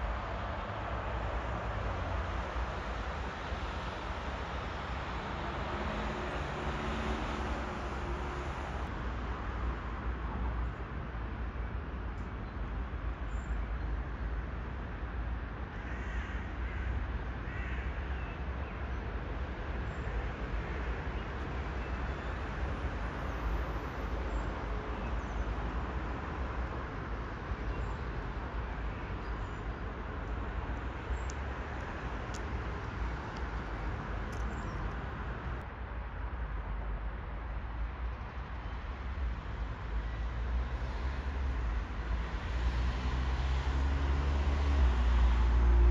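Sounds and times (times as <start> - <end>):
distant city traffic: 0.0 - 12.0, 19.1 - 45.9
crow cawing: 15.8 - 16.9, 17.5 - 17.9.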